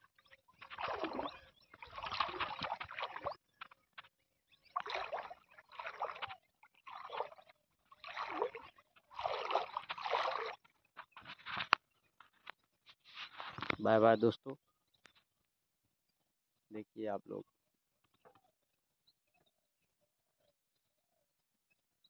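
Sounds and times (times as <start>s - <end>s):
wading through water: 0.0s - 14.1s.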